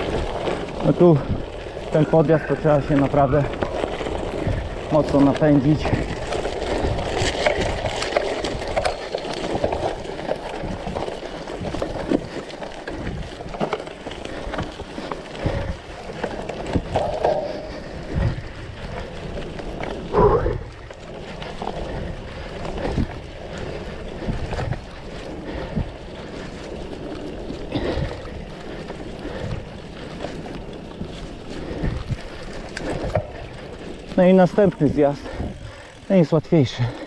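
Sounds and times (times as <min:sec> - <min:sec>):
bike knocking and rattling: 0:00.0 - 0:37.0
tyre and wind rush: 0:16.6 - 0:20.9.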